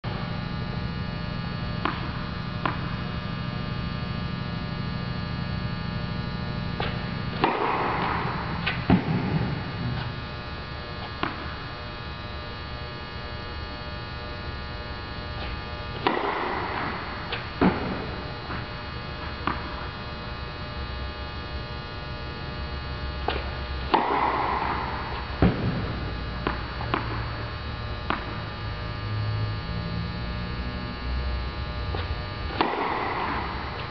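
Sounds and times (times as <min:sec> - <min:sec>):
steady electrical hum: 0:00.0 - 0:33.9
tennis ball bouncing: 0:01.8 - 0:03.0, 0:06.8 - 0:10.2, 0:16.0 - 0:18.6, 0:19.3 - 0:19.9, 0:23.2 - 0:27.3, 0:32.5 - 0:33.9
tennis ball hits: 0:06.8 - 0:10.2, 0:16.0 - 0:18.6, 0:23.2 - 0:27.2, 0:32.5 - 0:33.9.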